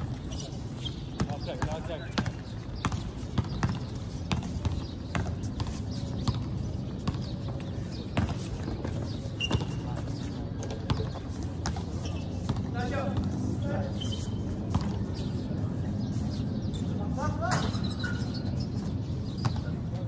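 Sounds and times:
running footsteps on hard court: 0:00.0 - 0:13.5
basketball bouncing: 0:01.1 - 0:09.8, 0:10.6 - 0:11.8, 0:14.7 - 0:15.0.

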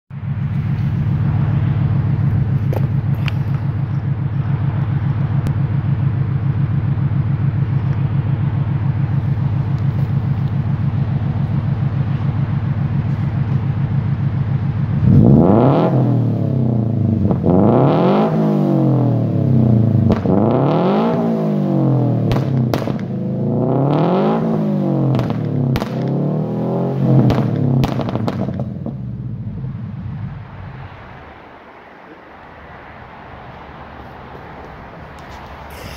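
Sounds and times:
car engine idling and revving: 0:00.1 - 0:35.9
exhaust pops and bangs: 0:02.2 - 0:03.8, 0:20.0 - 0:20.6, 0:22.2 - 0:23.2, 0:25.1 - 0:26.2, 0:27.2 - 0:29.2.

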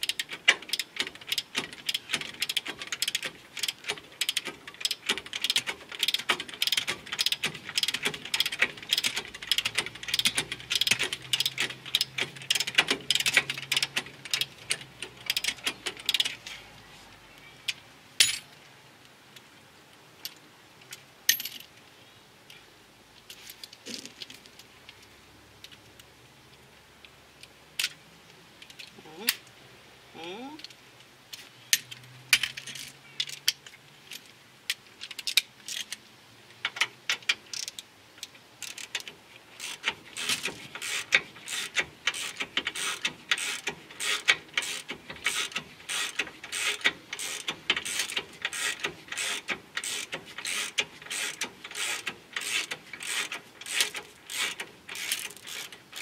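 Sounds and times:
ratchet wrench clicking: 0:00.0 - 0:16.4, 0:36.7 - 0:37.8, 0:38.6 - 0:56.0
sharp metal clicks: 0:00.0 - 0:16.4, 0:31.7 - 0:56.0.

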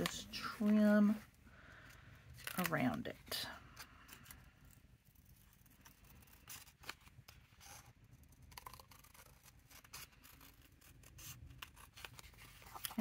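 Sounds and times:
scissors snipping paper: 0:05.1 - 0:13.0.

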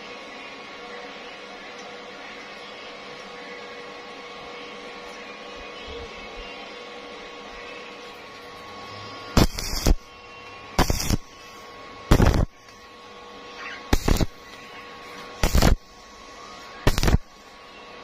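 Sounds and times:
electrical hum: 0:00.0 - 0:18.0
welding arc crackle: 0:09.3 - 0:10.1, 0:10.7 - 0:12.9, 0:13.6 - 0:16.0, 0:16.8 - 0:17.6.

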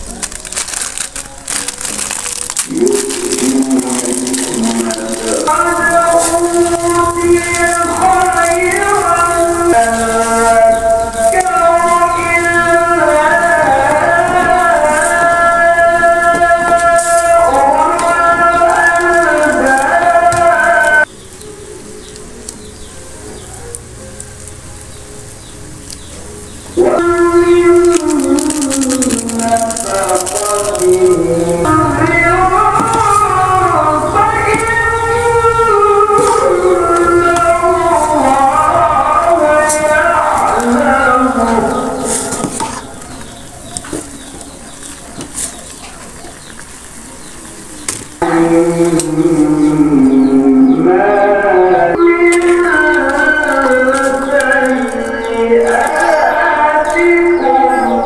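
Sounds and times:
background music with singing: 0:00.0 - 0:58.0
scissors snipping sachet: 0:27.7 - 0:31.2.

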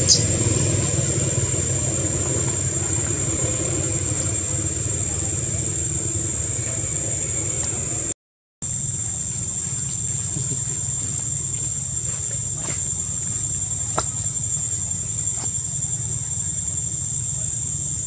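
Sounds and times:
low even rumble: 0:00.0 - 0:08.2
insects droning: 0:00.0 - 0:18.0.

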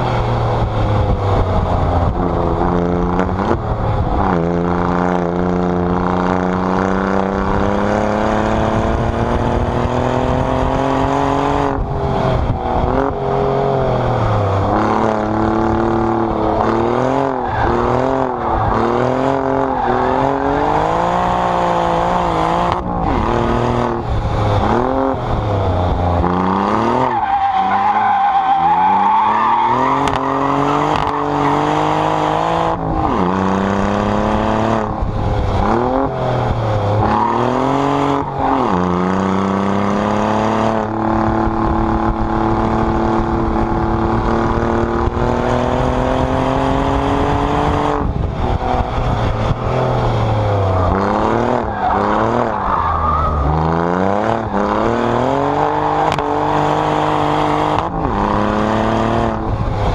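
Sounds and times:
car exhaust at full throttle: 0:00.0 - 0:59.9.

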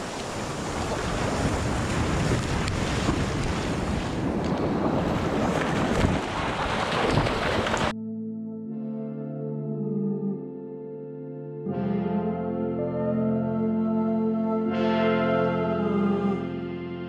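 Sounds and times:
sea waves breaking: 0:00.0 - 0:07.9
wind rumbling on microphone: 0:00.0 - 0:07.9.

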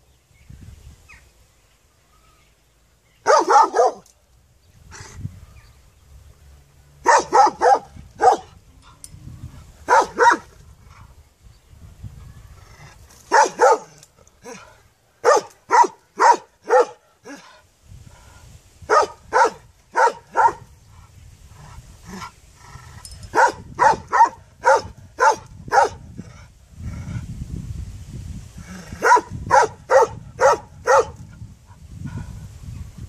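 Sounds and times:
dog barking: 0:03.2 - 0:04.0, 0:07.0 - 0:08.5, 0:09.9 - 0:10.4, 0:13.3 - 0:14.0, 0:15.2 - 0:17.0, 0:18.9 - 0:20.6, 0:23.4 - 0:26.0, 0:29.0 - 0:31.2.

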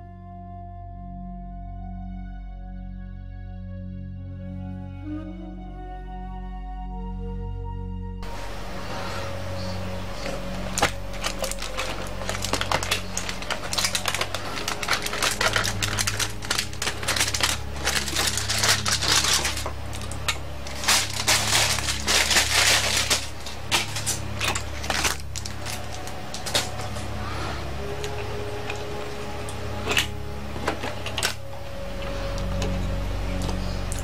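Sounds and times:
aluminium foil crinkling: 0:08.2 - 0:34.0.

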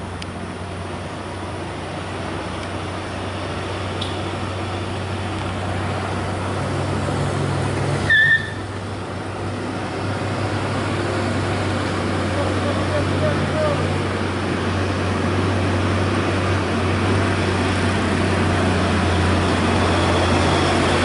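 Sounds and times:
vehicle engine droning: 0:00.0 - 0:21.0
short horn beep: 0:08.1 - 0:08.7.

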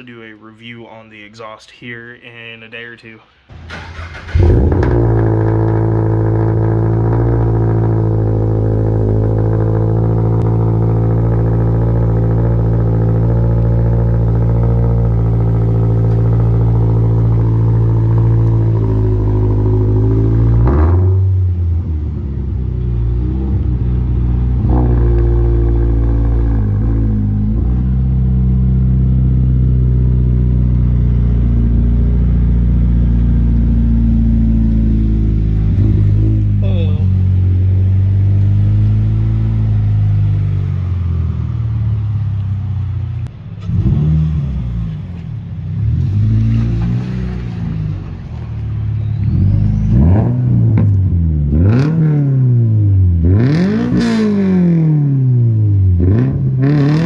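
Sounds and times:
car engine running: 0:03.5 - 0:43.9.

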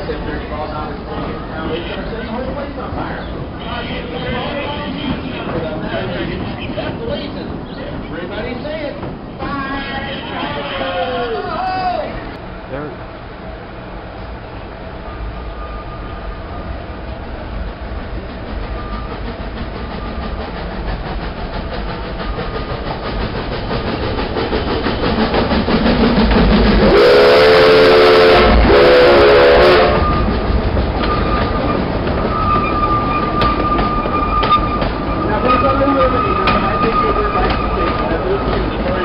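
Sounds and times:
coaches rolling over rails: 0:00.0 - 0:39.0
steam locomotive passing: 0:00.0 - 0:39.0
thin steady squeal: 0:15.0 - 0:16.7, 0:31.0 - 0:38.4
steam whistle blasts: 0:26.9 - 0:30.3.

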